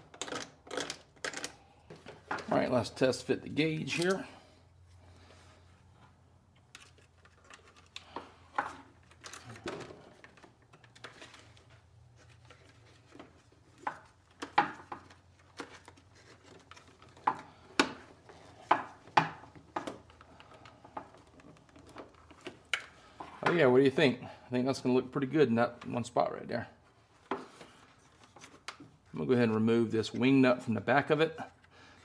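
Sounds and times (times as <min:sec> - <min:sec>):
plastic parts knocking and clicking: 0:00.0 - 0:02.5, 0:12.5 - 0:23.6.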